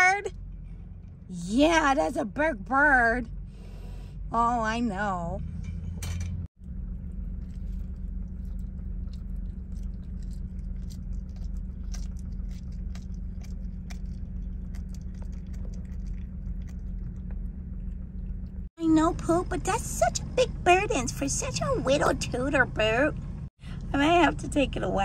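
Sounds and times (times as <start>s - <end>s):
steady low hum: 0.0s - 25.0s
animal chewing and crunching bones: 6.6s - 18.7s.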